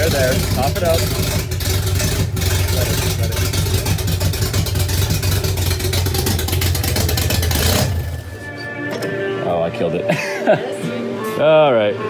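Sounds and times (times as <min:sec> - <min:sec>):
car engine running roughly: 0:00.0 - 0:08.4.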